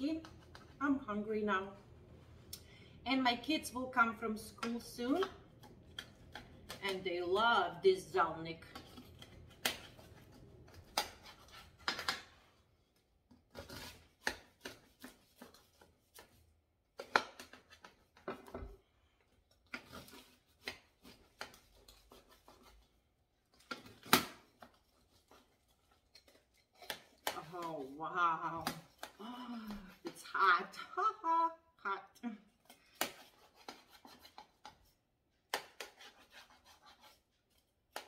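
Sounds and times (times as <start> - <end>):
knife cutting crisp flaky crust: 35.5 - 38.0.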